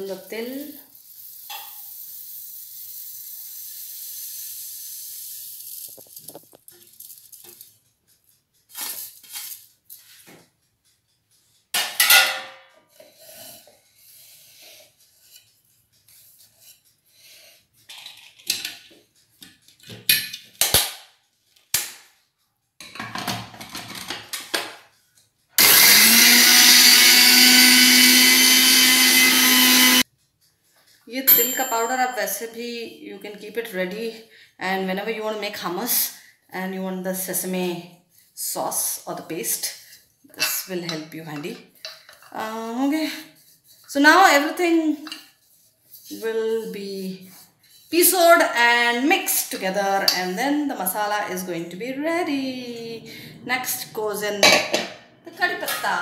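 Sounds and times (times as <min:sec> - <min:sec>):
mixer grinder whining and running: 0:25.6 - 0:30.0.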